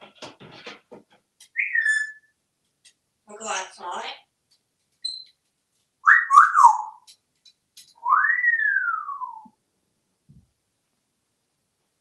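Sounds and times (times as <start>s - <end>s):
parrot whistling: 1.6s - 2.4s, 6.0s - 7.1s, 8.0s - 9.5s.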